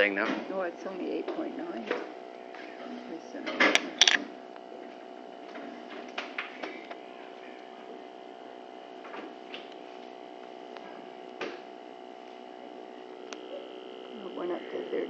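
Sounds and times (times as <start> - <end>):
steady electrical hum: 0.0 - 15.0
handling clicks and knocks: 3.6 - 4.2.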